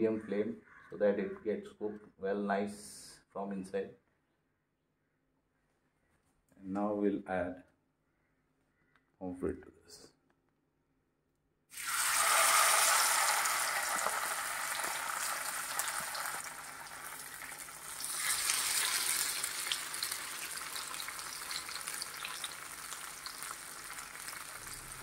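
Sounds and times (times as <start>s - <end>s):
oil sizzling in a frying pan: 11.7s - 25.0s.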